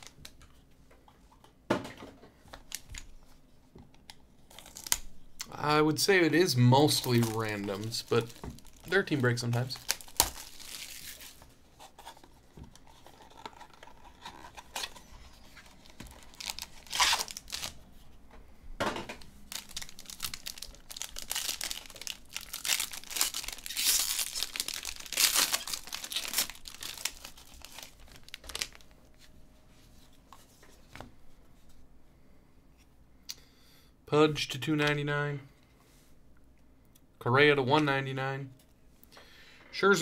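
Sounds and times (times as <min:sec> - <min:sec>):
foil pack crinkling and ripping: 0:04.5 - 0:05.1, 0:06.4 - 0:17.8, 0:19.5 - 0:28.9
plastic wrap tearing: 0:04.5 - 0:05.1, 0:06.7 - 0:17.8, 0:19.5 - 0:28.9.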